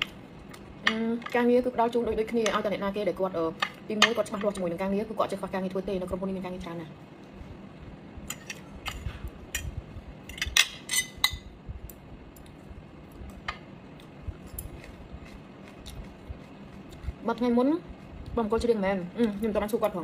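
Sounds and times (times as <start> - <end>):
soft chewing: 12.3 - 17.2.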